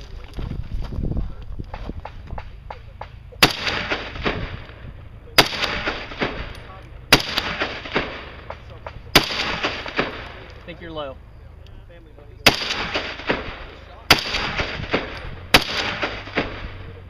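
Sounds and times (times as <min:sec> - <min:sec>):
rifle shots with echoes: 0:01.7 - 0:10.7, 0:12.4 - 0:17.0.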